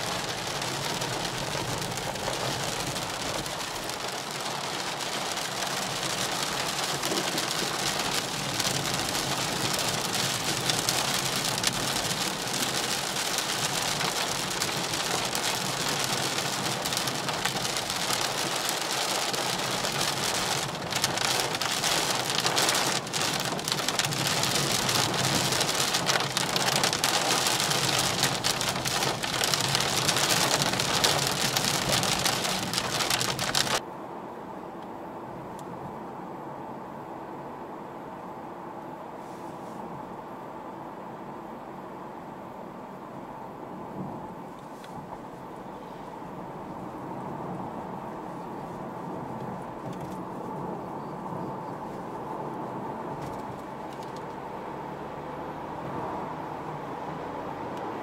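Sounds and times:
rain on a car roof: 0:00.0 - 0:33.8, 0:46.2 - 0:58.0.

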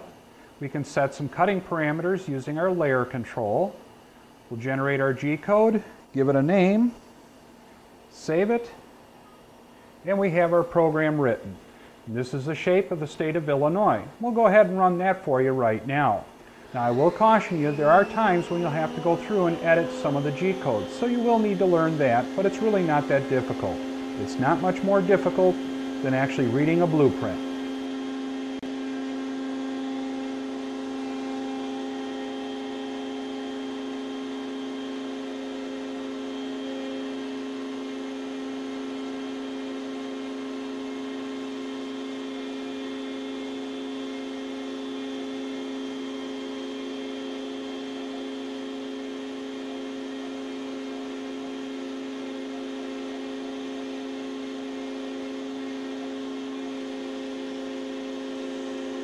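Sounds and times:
router spindle high-pitched whine: 0:14.3 - 0:59.0.

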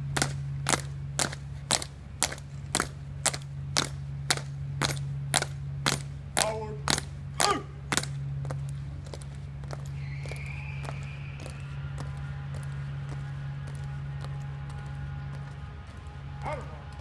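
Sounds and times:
marching footsteps on stone: 0:00.0 - 0:17.0
steady low hum: 0:00.0 - 0:17.0
person shouting a command: 0:06.4 - 0:07.8, 0:16.4 - 0:17.0.

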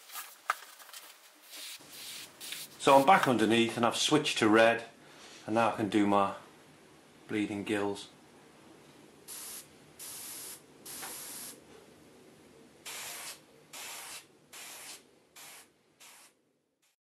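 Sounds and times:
airbrush spraying hiss: 0:09.3 - 0:11.6, 0:12.9 - 0:17.0.

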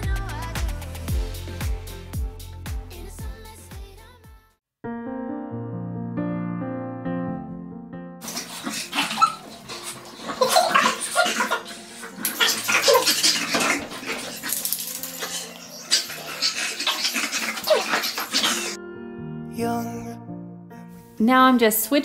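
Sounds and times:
dog noises: 0:08.2 - 0:18.8.

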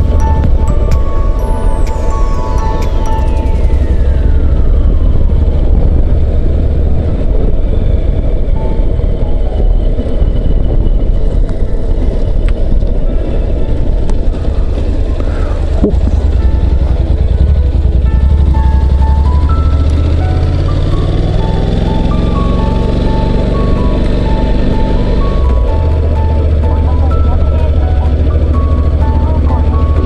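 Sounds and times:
motorcycle engine: 0:00.0 - 0:30.0
wind rush: 0:00.0 - 0:30.0.

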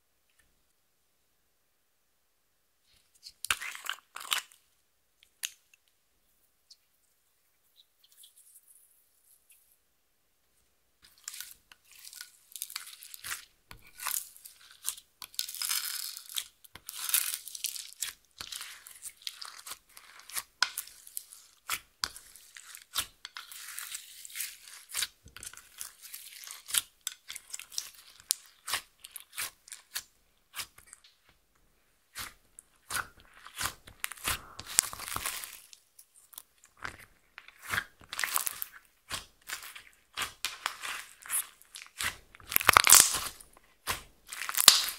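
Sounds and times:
slime being kneaded squelching: 0:11.0 - 0:31.4, 0:32.0 - 0:44.9.

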